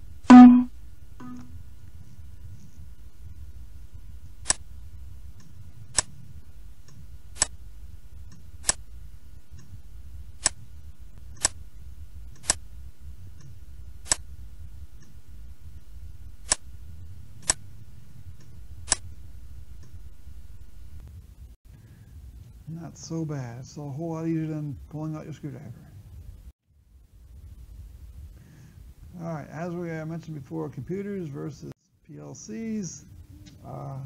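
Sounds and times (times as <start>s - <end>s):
low background hum: 0.0s - 34.0s
computer mouse clicking: 12.3s - 12.6s.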